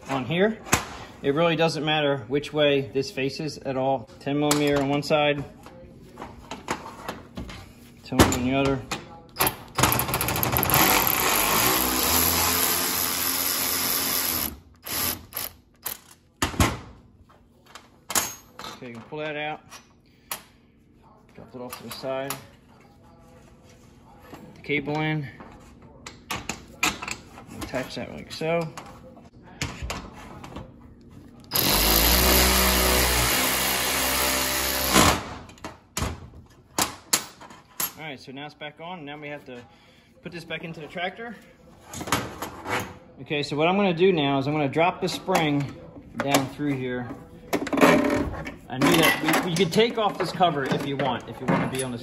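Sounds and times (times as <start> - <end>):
electric ratchet running: 10.5 - 16.0, 31.5 - 35.1.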